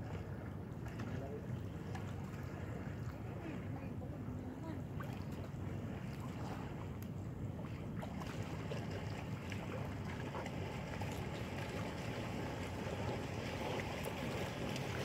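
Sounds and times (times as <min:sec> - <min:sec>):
water lapping against rocks: 0:04.9 - 0:15.0.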